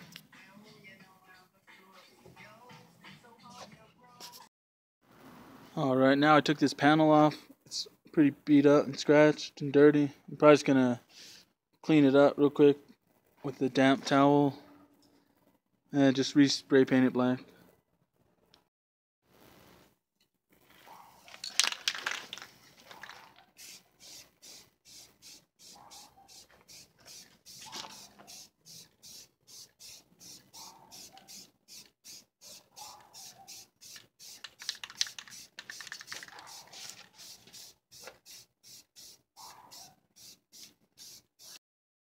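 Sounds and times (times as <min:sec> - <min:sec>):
spray can ball rattling: 0:21.1 - 0:41.6
spray nozzle hissing: 0:23.6 - 0:41.6.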